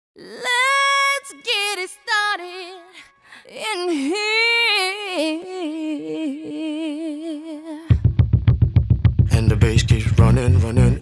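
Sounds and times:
girl singing long notes: 0.2s - 8.0s.

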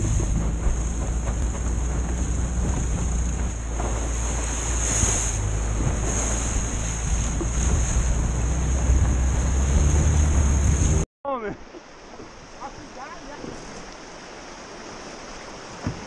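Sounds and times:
outboard motor running: 0.0s - 11.0s
wind buffeting microphone: 0.0s - 11.0s
water rushing past hull: 0.0s - 16.0s.

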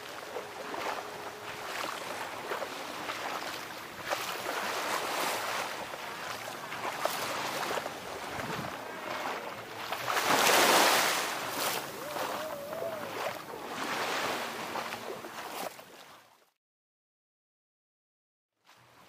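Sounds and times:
waves washing onto sand: 0.0s - 16.2s
wind on microphone: 6.9s - 15.2s.

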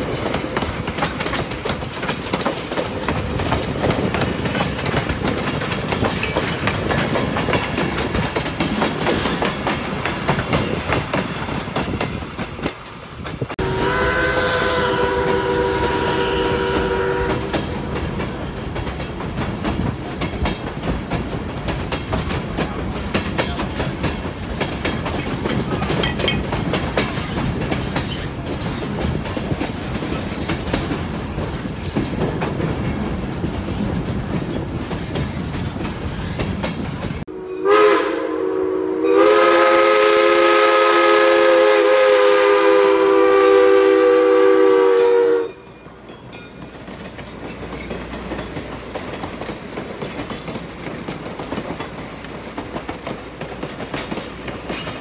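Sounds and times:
train wheels clacking on rails: 0.0s - 37.3s, 39.2s - 55.0s
steam locomotive whistle: 13.6s - 17.8s, 37.3s - 45.7s.

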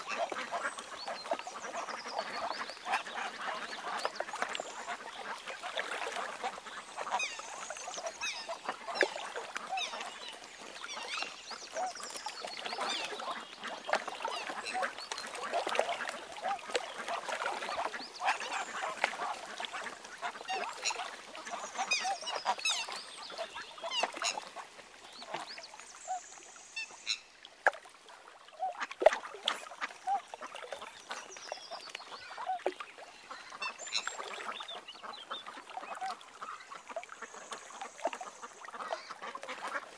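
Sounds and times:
swans and cygnets calling: 0.0s - 24.6s.

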